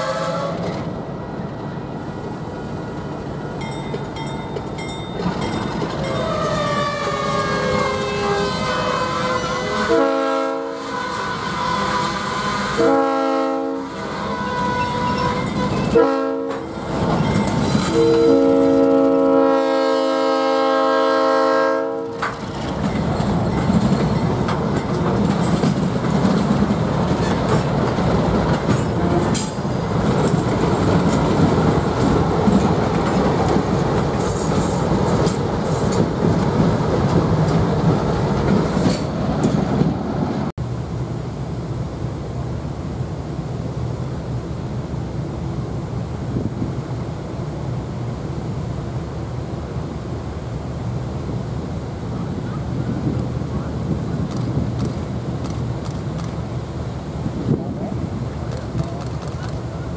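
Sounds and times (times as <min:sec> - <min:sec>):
wheels clattering over rail joints: 0:03.6 - 0:06.6, 0:15.0 - 0:18.3, 0:22.2 - 0:40.0
high wheel squeal: 0:14.2 - 0:16.0.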